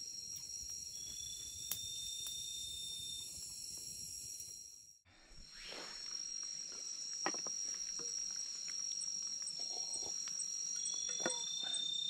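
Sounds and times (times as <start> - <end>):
insects ringing chorus: 0.0 - 4.9, 5.5 - 12.0.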